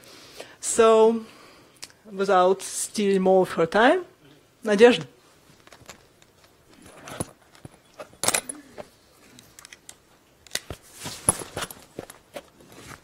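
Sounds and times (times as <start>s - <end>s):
microphone handling rustles: 10.7s - 13.0s.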